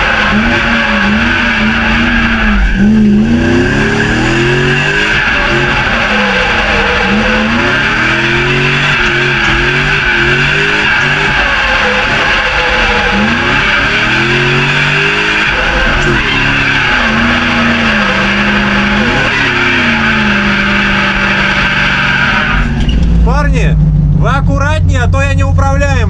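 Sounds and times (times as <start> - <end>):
tyres squealing: 0.0 - 23.2
car engine revving: 0.0 - 26.0.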